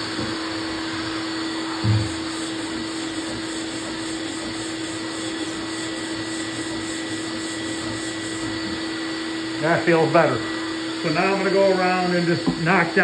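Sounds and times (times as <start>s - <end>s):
shop vacuum humming: 0.0s - 13.0s
sanding block on filler: 1.8s - 8.8s.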